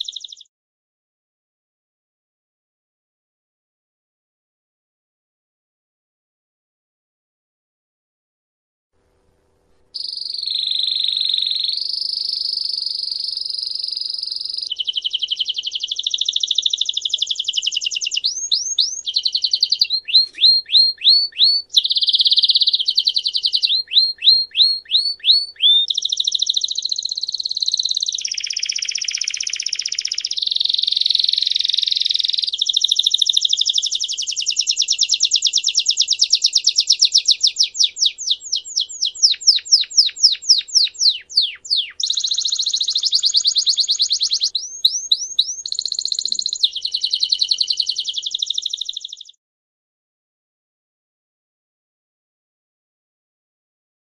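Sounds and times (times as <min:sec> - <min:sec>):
canary singing trills: 0:00.0 - 0:00.5, 0:10.0 - 0:49.4.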